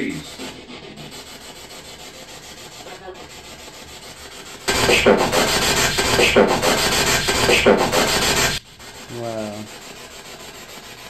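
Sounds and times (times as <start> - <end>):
radio static hiss: 4.7 - 8.6
voice-like fragments: 4.7 - 9.6.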